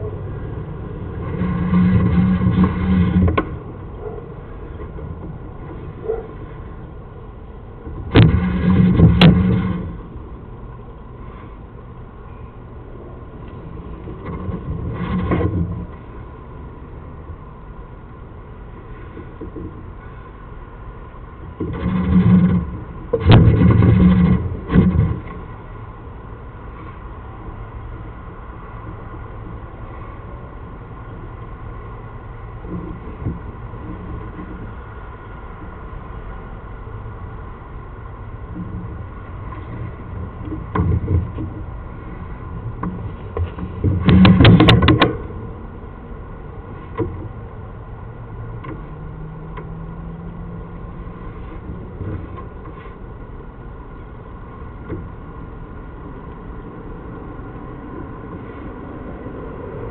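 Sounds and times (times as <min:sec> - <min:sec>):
steady electrical hum: 0:00.0 - 0:59.9
cable scraping in pipe: 0:00.9 - 0:06.8, 0:07.8 - 0:10.2, 0:13.4 - 0:16.2, 0:21.4 - 0:25.7, 0:38.5 - 0:45.4.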